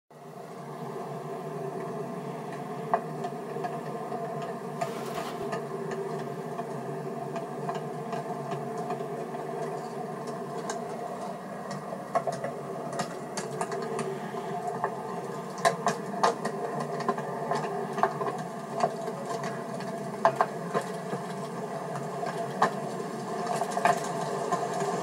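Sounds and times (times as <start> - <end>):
miniature train running: 2.6 - 9.8, 10.6 - 25.0
wheels clicking over rail joints: 4.8 - 6.1.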